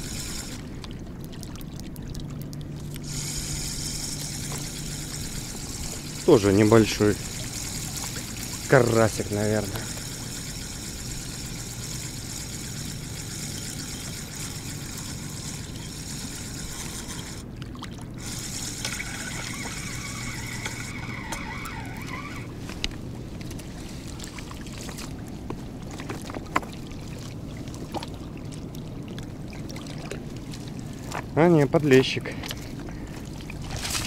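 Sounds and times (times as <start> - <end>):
fishing reel whirring: 0.0 - 0.7, 3.0 - 17.5, 18.2 - 22.6.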